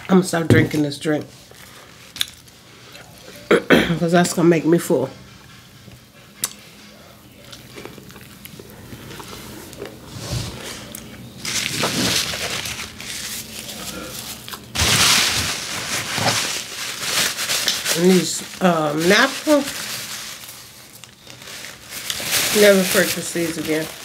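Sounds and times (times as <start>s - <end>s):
quiet chewing: 1.5s - 3.5s, 5.5s - 11.3s
paper napkins crumpling: 5.1s - 24.0s.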